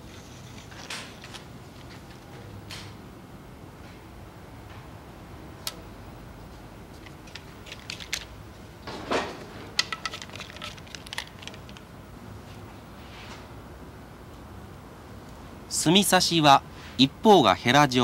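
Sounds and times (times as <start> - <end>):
line rustling: 6.9 - 12.6.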